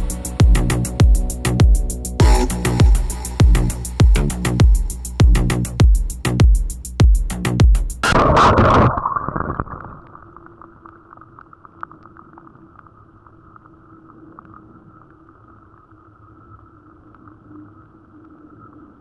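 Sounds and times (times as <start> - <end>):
muffled underwater stream noise: 8.0 - 19.0.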